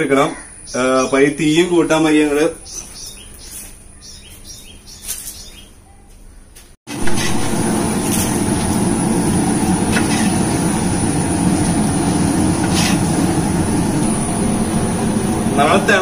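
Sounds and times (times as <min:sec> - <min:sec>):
gas burner rushing: 0:06.9 - 0:16.0.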